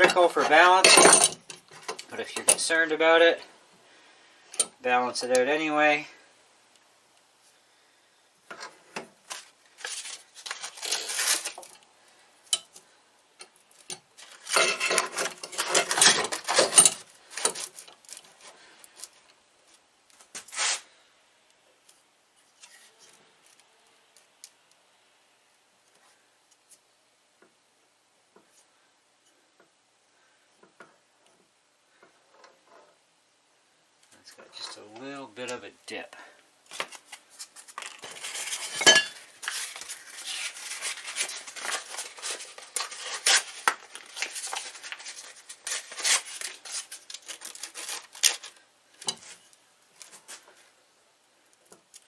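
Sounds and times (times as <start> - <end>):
hand scraping and rubbing: 19.7 - 20.9, 36.7 - 48.6.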